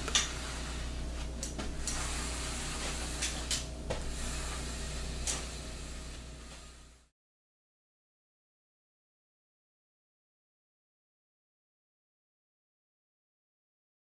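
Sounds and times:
low room hum: 0.0 - 7.1.

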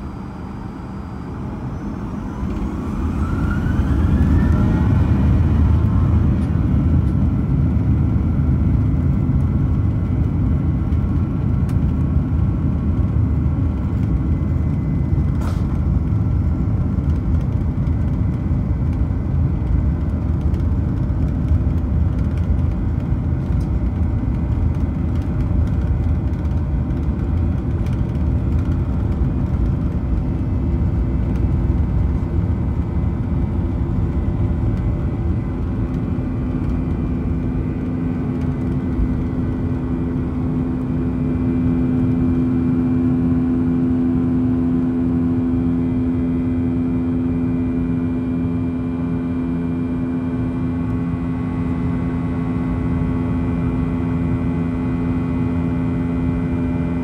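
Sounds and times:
faint high engine tones: 0.0 - 11.1
jet engine rumble inside cabin: 0.0 - 57.0.

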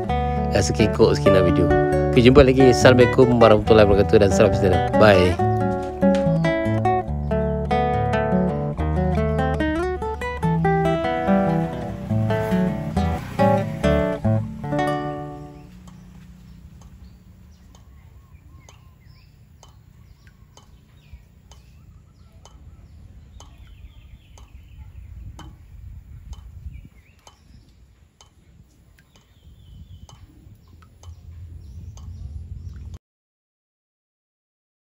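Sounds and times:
birds calling: 0.0 - 33.0
low rumble: 30.5 - 33.0.

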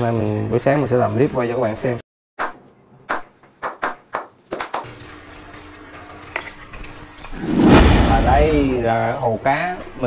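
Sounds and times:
low rumble: 7.4 - 9.0.

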